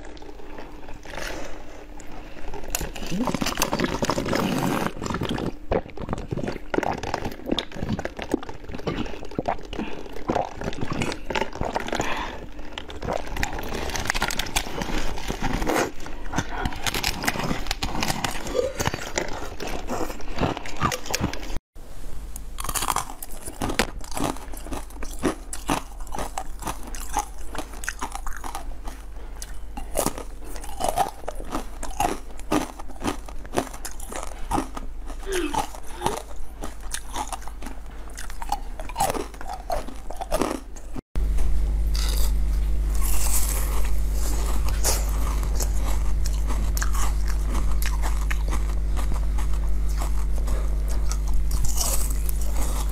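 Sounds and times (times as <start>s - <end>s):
steady low hum: 0.0s - 52.9s.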